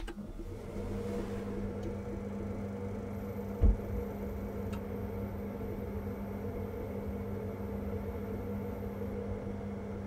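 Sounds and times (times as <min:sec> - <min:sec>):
boiler fan humming: 0:00.0 - 0:10.0
low thump: 0:03.6 - 0:03.9.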